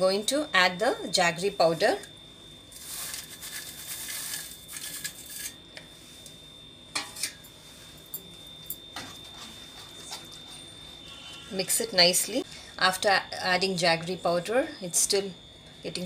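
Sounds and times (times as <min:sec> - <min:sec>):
powder rustling into pan: 0:02.8 - 0:05.5
metal spatula scraping a pan: 0:02.8 - 0:05.6.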